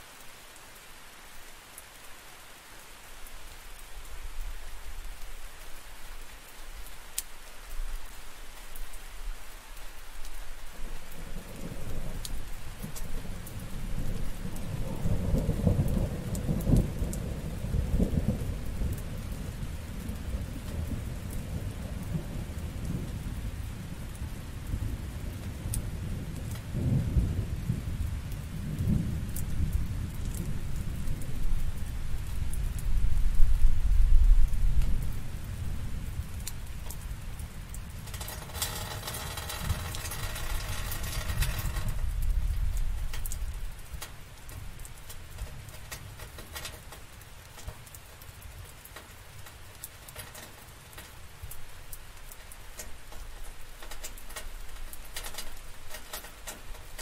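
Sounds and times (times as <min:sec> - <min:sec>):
steady rain falling: 0:00.0 - 0:57.0
rolling thunder: 0:11.1 - 0:43.8.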